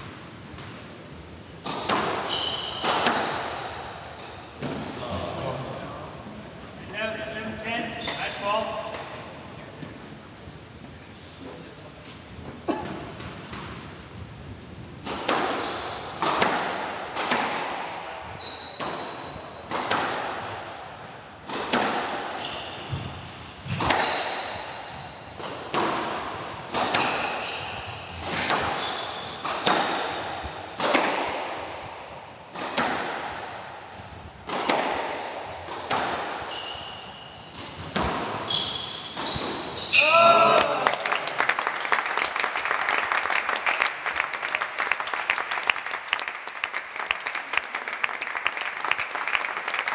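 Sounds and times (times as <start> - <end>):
squash ball cracking off rackets: 1.6 - 4.8, 15.0 - 18.0, 21.5 - 23.1, 25.4 - 27.4, 29.4 - 31.8, 32.5 - 33.3, 34.4 - 36.5
shoes squeaking on wooden floor: 2.2 - 3.2, 7.8 - 8.4, 15.5 - 16.5, 18.2 - 19.7, 22.4 - 25.1, 26.8 - 29.8, 33.3 - 34.4, 35.9 - 40.0.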